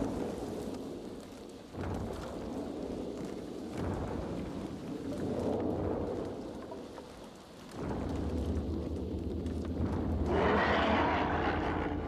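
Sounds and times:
deep rumble: 7.7s - 12.0s
rough creature roar: 10.3s - 12.0s.

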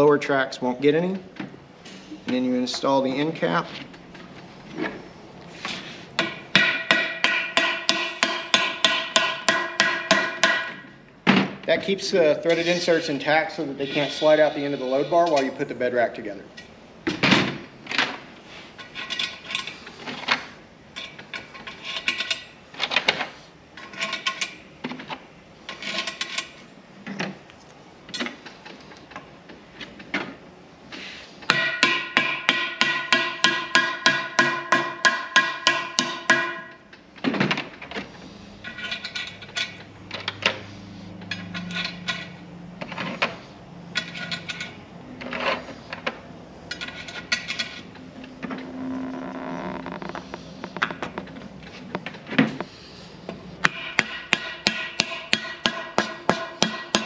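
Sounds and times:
metal bars clattering: 53.6s - 57.0s.

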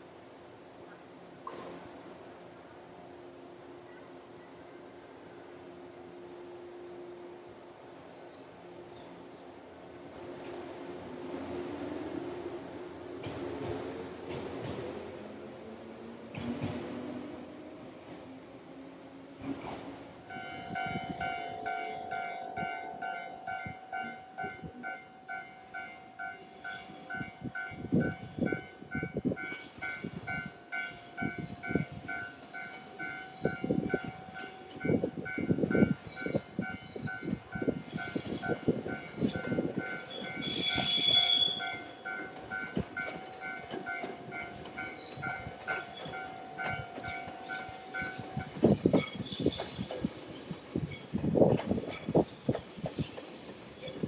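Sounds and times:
train wheels clattering over rail joints: 13.2s - 15.1s, 16.3s - 17.1s, 38.0s - 54.0s
high-pitched train squeal: 20.6s - 54.0s.

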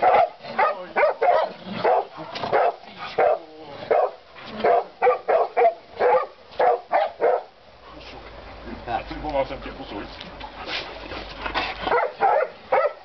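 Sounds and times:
dogs barking and yelping: 0.0s - 7.6s, 10.6s - 13.0s.

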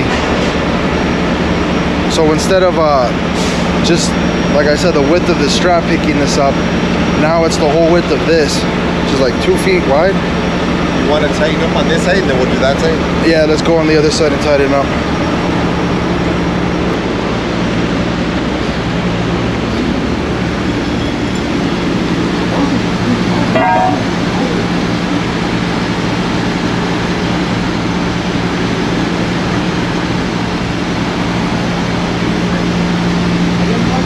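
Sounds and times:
short pitched sound: 23.5s - 24.8s.

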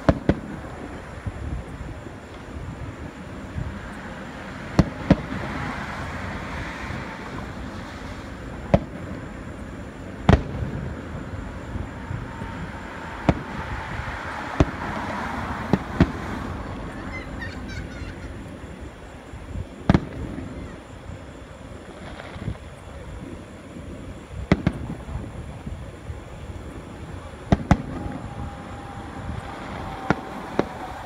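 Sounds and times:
distant firework booms: 0.0s - 0.9s, 4.7s - 5.5s, 8.6s - 9.2s, 10.2s - 11.0s, 12.0s - 15.0s, 15.6s - 16.3s, 19.8s - 20.7s, 24.4s - 25.5s, 27.4s - 31.0s
background noise: 0.0s - 31.0s.

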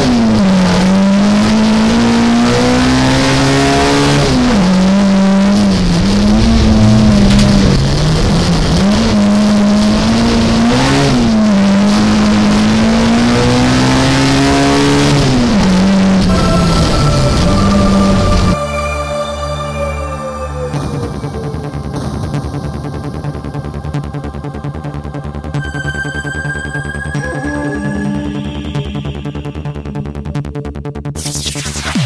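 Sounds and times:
car engine revving high: 0.0s - 22.2s.

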